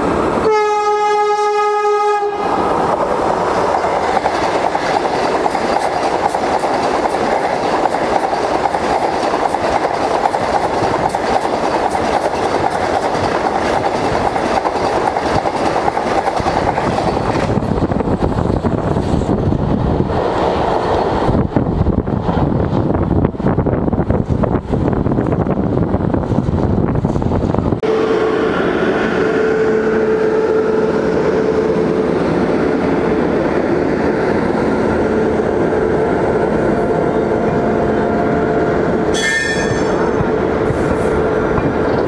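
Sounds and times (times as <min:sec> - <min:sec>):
train rumbling past: 0:00.0 - 0:42.0
train horn: 0:00.4 - 0:02.6, 0:27.8 - 0:32.2, 0:35.0 - 0:41.4
wheels clicking over rail joints: 0:02.9 - 0:17.6.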